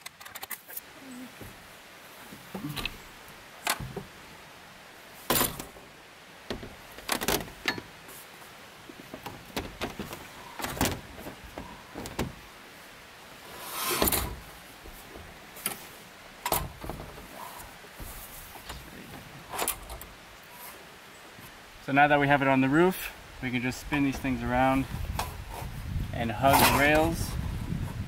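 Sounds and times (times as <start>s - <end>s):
metal frame clunks and rattles: 5.3s - 8.0s, 8.9s - 12.5s, 13.8s - 15.8s, 16.4s - 20.2s, 26.4s - 27.8s
metal scrape: 13.5s - 14.4s, 26.4s - 27.2s.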